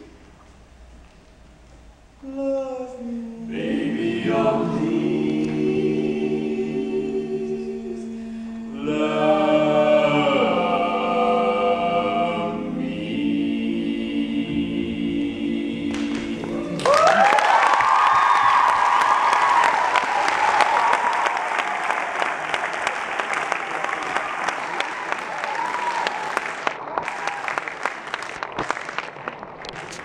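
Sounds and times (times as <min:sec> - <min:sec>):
male voices singing in close harmony: 0:02.3 - 0:16.8
audience applause and cheers: 0:15.9 - 0:30.0.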